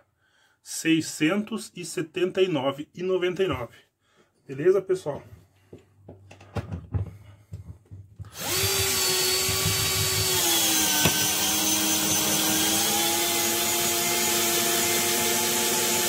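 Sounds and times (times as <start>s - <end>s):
cordless drill driving screw: 8.3s - 16.0s.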